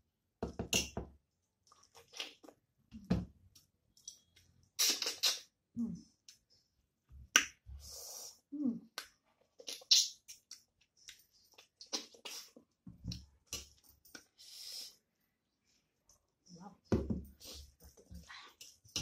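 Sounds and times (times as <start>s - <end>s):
lip smacks and chewing: 8.9s - 14.3s.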